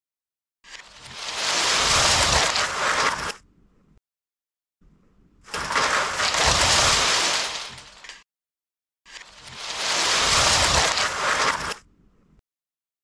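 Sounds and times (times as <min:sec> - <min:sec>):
plastic bricks crashing and clattering: 0:05.5 - 0:08.2.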